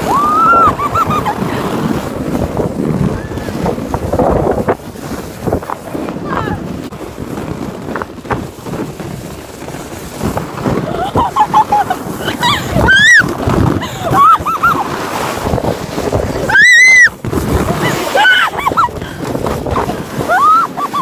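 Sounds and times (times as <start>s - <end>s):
girls squealing: 0.0s - 1.4s, 12.2s - 13.3s, 14.0s - 14.8s, 16.4s - 17.2s, 17.8s - 18.9s, 20.3s - 21.0s
wind rushing over microphone: 0.0s - 21.0s.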